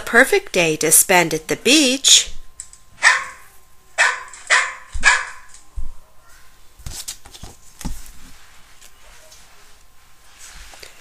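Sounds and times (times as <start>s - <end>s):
dog barking: 3.0s - 3.4s, 4.0s - 5.5s.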